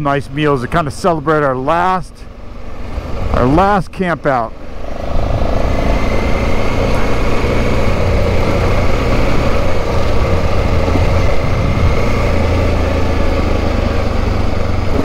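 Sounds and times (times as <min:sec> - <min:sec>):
off-road motorcycle engine running: 0:00.0 - 0:15.0
wind rushing over microphone: 0:04.6 - 0:15.0.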